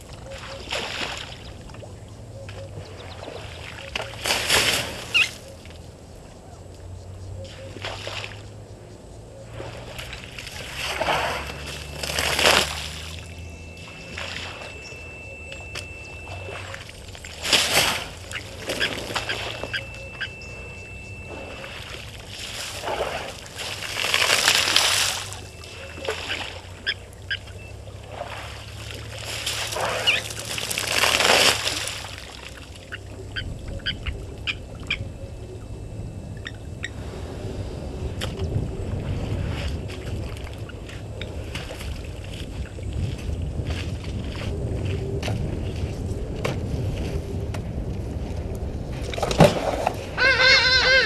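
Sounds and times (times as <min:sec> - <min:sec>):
elephant splashing water: 0:00.0 - 0:01.7, 0:02.8 - 0:05.3, 0:09.5 - 0:33.0
short bird calls: 0:50.2 - 0:51.0.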